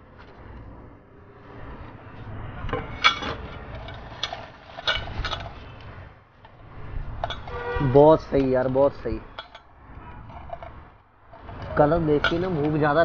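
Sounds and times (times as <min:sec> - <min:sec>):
steel bowls clinking: 0:03.1 - 0:05.6, 0:09.3 - 0:13.0.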